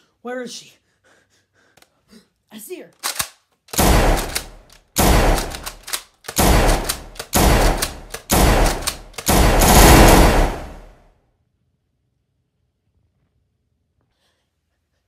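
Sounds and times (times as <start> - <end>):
loud gunshot bangs: 3.8 - 4.4, 5.0 - 5.5, 6.4 - 11.0.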